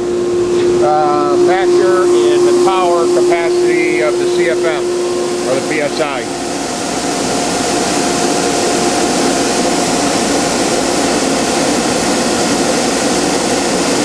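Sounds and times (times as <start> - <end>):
air compressor running: 0.0 - 14.0.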